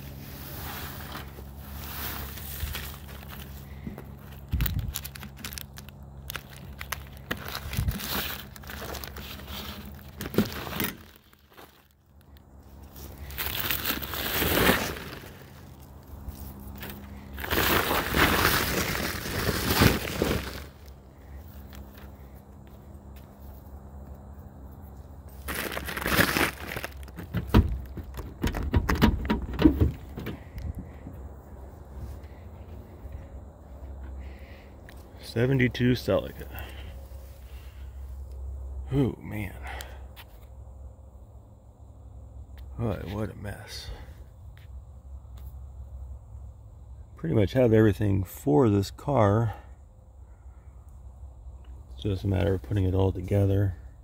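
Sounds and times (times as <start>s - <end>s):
plastic tarp dragged crinkling: 0.0s - 3.7s, 6.3s - 11.9s, 12.9s - 15.8s, 16.4s - 20.9s, 25.4s - 27.3s
pine needles crunching and rustling: 0.0s - 23.7s, 25.0s - 28.0s
twigs crackling: 0.6s - 23.3s, 25.3s - 28.4s.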